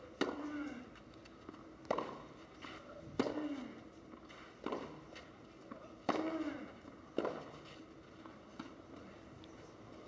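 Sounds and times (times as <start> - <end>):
tennis ball struck by rackets: 1.9 - 2.2.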